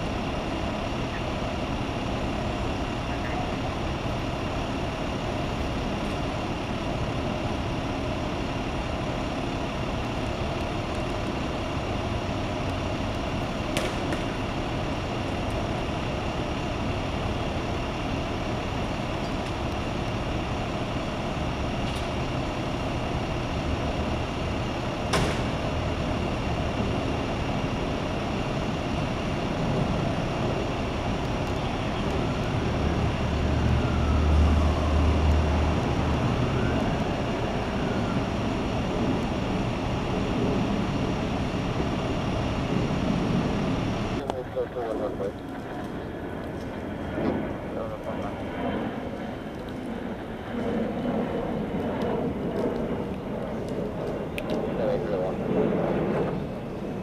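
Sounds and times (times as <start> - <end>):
ambulance engine idling: 0.0 - 47.1.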